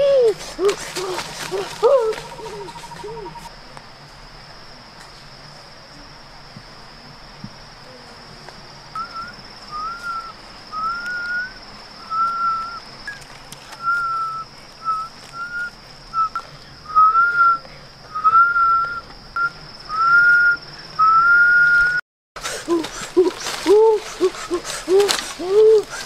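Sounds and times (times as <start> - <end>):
high-pitched insect drone: 0.0 - 3.7, 4.4 - 26.0
person whistling a tune: 9.0 - 12.8, 13.8 - 22.0.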